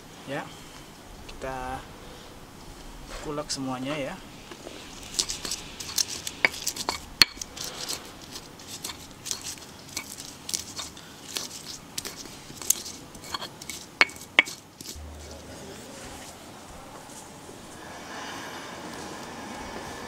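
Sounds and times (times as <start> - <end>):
stone pestle grinding in mortar: 5.0 - 15.3.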